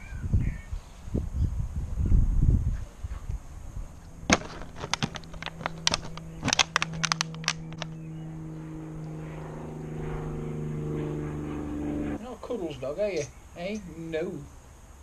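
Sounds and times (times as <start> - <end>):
steady low hum: 0.0 - 15.0
plastic bottle crackling in teeth: 4.3 - 7.9.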